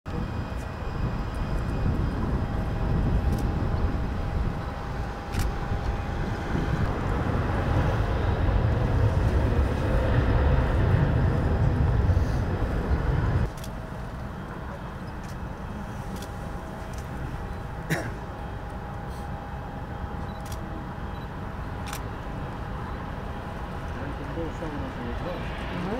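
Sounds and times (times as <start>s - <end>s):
high whine of aircraft turbines: 0.1s - 25.9s
low rumble: 0.1s - 25.9s.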